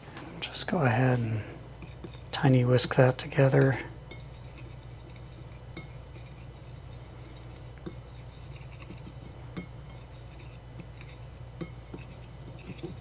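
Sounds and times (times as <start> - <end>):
whisk scratching on plate: 1.8 - 13.0
whisk clinking against plate: 2.8 - 13.0.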